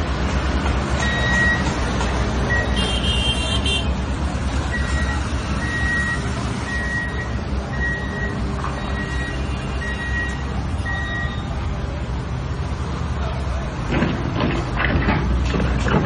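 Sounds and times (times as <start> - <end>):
loader engine rumble: 0.0 - 16.0
reversing alarm beeping: 1.0 - 1.7, 2.5 - 2.9, 4.7 - 11.5.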